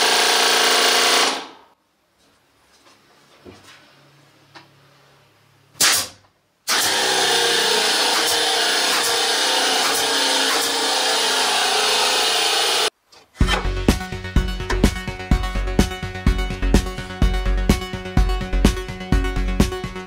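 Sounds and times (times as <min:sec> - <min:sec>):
nail gun firing: 0:00.0 - 0:01.6, 0:05.8 - 0:12.9.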